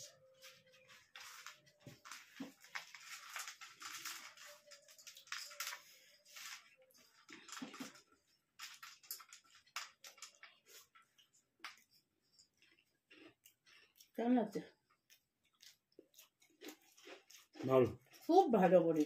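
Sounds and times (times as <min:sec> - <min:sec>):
chewing: 0:06.6 - 0:19.0.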